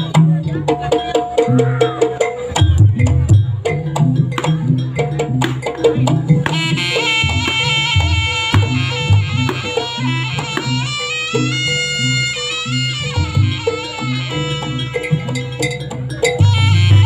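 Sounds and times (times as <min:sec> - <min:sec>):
hand drums beating: 0:00.0 - 0:17.0
wood block strokes: 0:05.4 - 0:10.9
reedy wind melody: 0:06.3 - 0:17.0.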